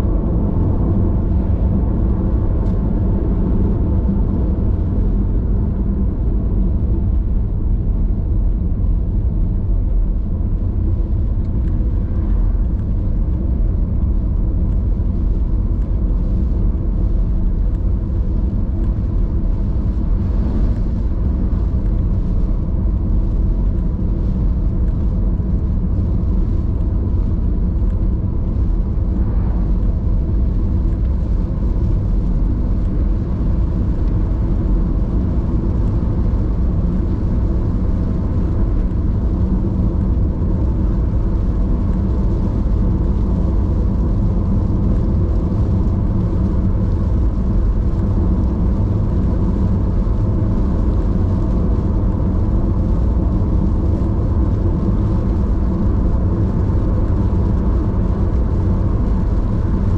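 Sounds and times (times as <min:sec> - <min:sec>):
car engine rumble: 0:00.0 - 0:59.9
road noise on wet road: 0:00.0 - 0:59.9.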